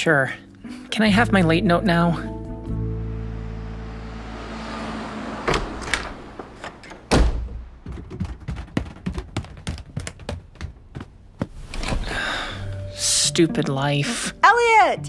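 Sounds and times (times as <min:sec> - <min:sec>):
door shutting with heavy thud: 0:05.4 - 0:08.5.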